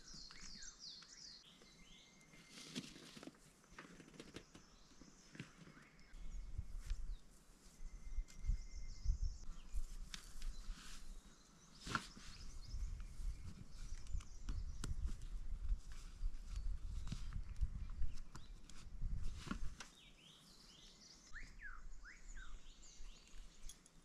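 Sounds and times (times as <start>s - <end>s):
footsteps on dry grass: 11.8s - 19.8s.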